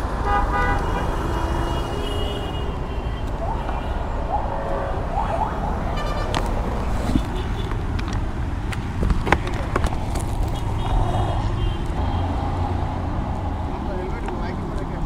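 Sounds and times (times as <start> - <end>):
street traffic rumble: 0.0 - 15.0
camera handling knocks and clicks: 7.1 - 10.6.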